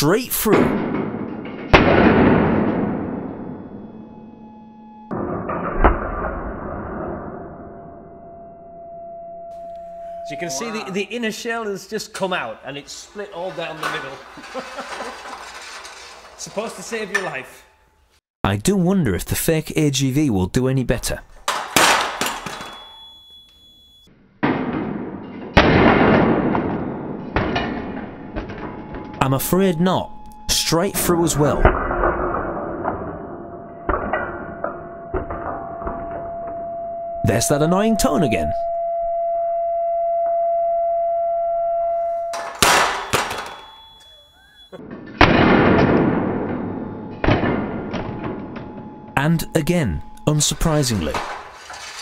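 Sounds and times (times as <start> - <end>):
loud metal impacts: 0.1 - 4.5, 5.1 - 8.4, 12.9 - 18.2, 21.4 - 23.0, 24.4 - 36.6, 42.1 - 52.0
sharp loud bang: 0.5 - 3.6, 42.4 - 43.7
steady electronic tone: 3.2 - 11.1, 34.5 - 42.5, 47.8 - 51.5.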